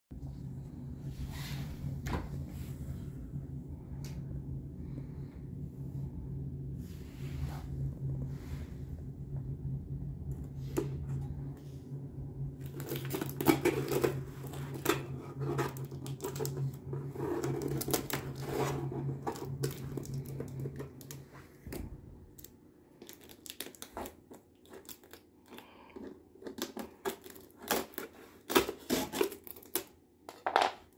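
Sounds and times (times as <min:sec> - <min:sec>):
steady low hum: 0:00.1 - 0:29.2
packing tape ripping: 0:26.6 - 0:29.9.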